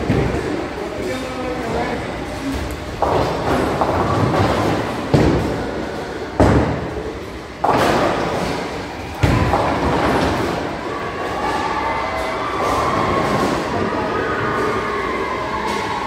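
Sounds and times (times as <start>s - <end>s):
bowling balls rolling rumble: 0.0s - 16.0s
bowling balls crashing into pins: 2.9s - 10.8s.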